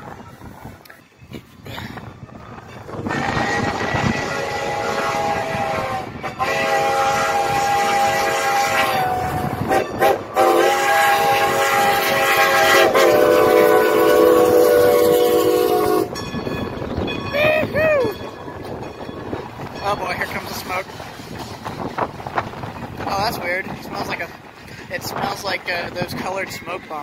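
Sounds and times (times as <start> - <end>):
steam locomotive whistle: 3.0 - 16.2.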